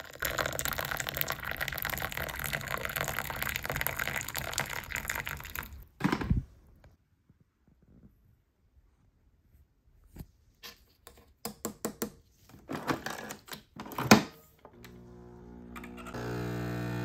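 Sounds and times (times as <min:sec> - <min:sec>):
coffee machine pump humming: 0:14.7 - 0:17.0.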